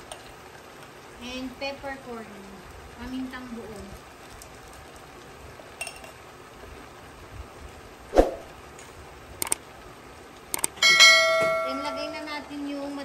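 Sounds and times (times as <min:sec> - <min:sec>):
sharp clicks: 0:09.4 - 0:09.6, 0:10.5 - 0:10.8.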